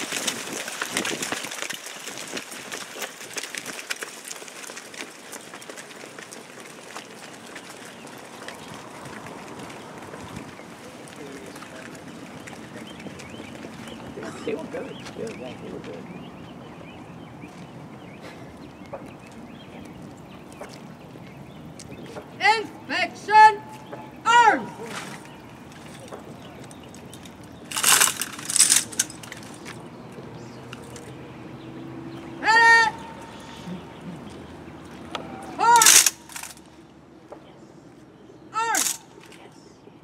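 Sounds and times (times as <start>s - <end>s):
boots hurrying on asphalt: 0.0s - 14.2s.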